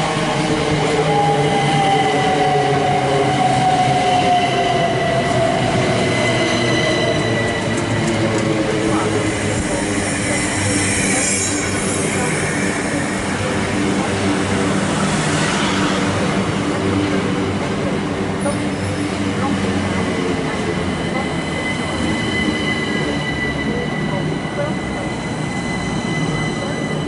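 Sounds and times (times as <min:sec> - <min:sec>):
train wheel and rail noise: 0:00.0 - 0:27.0.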